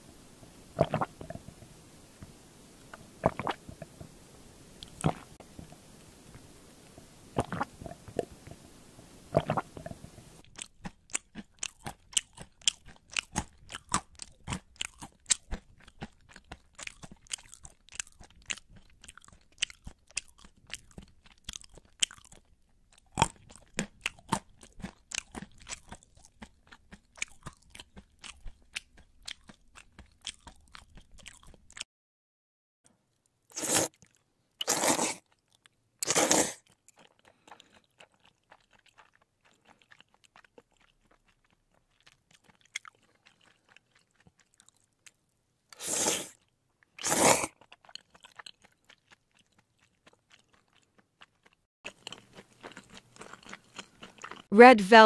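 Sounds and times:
crunchy chewing: 9.3s - 31.8s, 33.2s - 54.5s.

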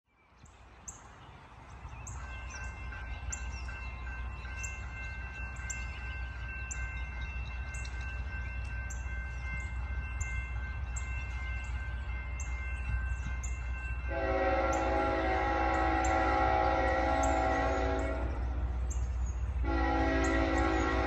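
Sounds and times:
small birds chirping: 0.2s - 14.0s.

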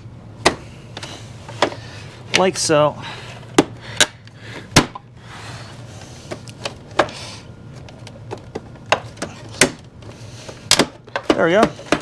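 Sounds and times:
plastic parts clicking and knocking: 10.7s - 12.0s.

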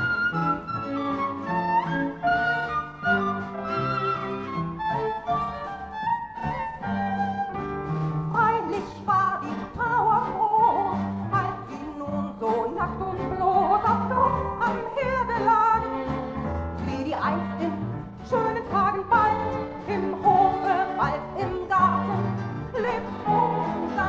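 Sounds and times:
orchestral music: 0.0s - 9.4s.

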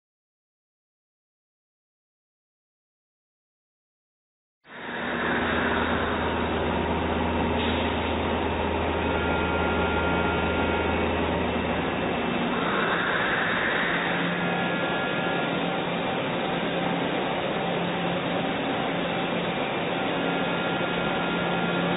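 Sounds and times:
lathe machine humming: 4.7s - 21.9s
low drone: 4.7s - 21.9s.

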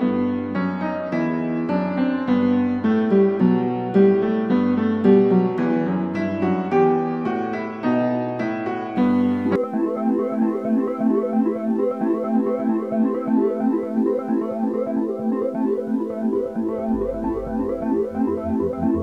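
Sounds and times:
synthesizer playing repeating notes: 9.3s - 19.0s.

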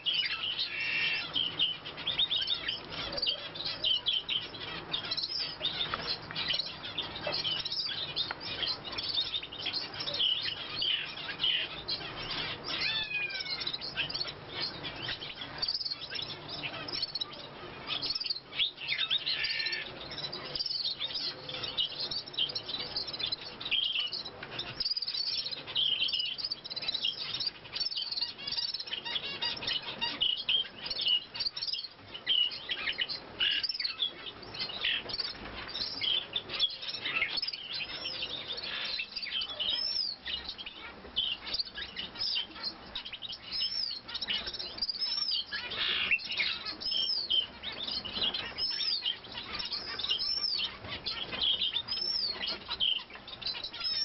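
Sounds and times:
finches chirping: 0.0s - 54.0s.

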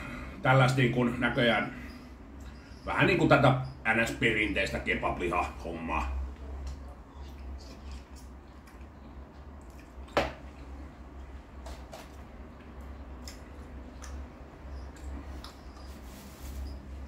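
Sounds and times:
steady low hum: 0.0s - 17.0s
man chewing: 6.6s - 17.0s.

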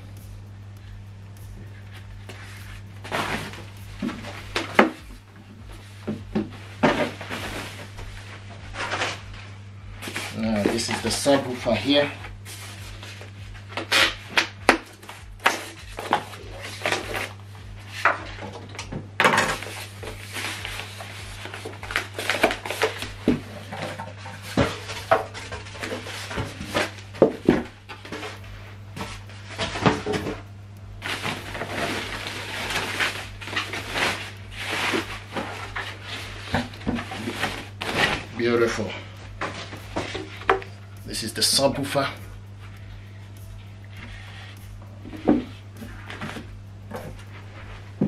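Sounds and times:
steady low hum: 0.0s - 48.0s
packaging rustling and scraping: 1.9s - 5.1s, 5.7s - 42.1s.

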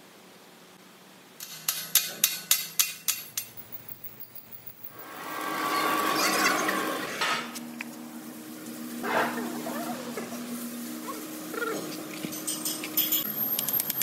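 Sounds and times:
mechanical whir with humming tone: 4.9s - 14.0s.

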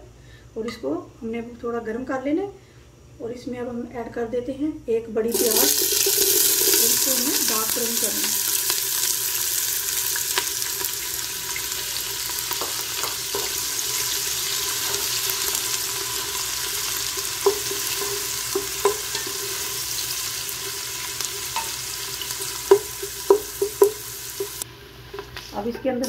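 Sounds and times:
onions sizzling in hot oil: 5.3s - 26.0s
spatula knocking against pot: 22.7s - 24.6s.

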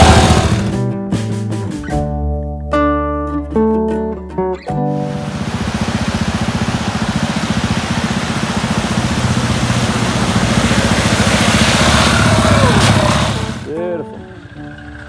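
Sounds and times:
motorcycle engine running: 0.0s - 0.8s, 5.0s - 15.0s
water splashing: 5.0s - 13.7s.

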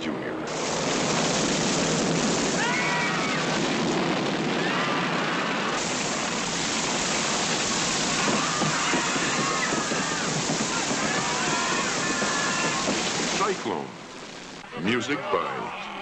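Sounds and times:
wind-driven rain and crashing water: 0.4s - 14.7s
high wails: 2.4s - 3.8s, 4.4s - 5.8s, 7.2s - 13.6s.

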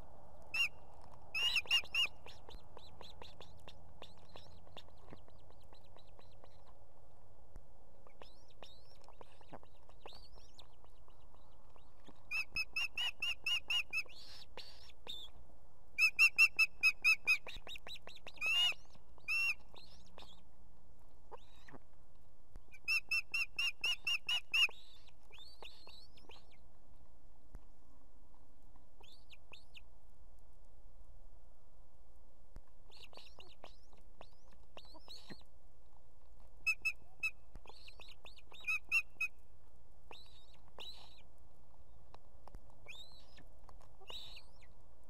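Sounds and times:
rapid sharp whistled bird calls: 1.4s - 6.6s, 8.1s - 15.3s, 22.7s - 26.6s, 36.7s - 39.4s, 40.1s - 41.3s, 42.8s - 44.7s
faint single bird chirps: 42.8s - 44.8s.

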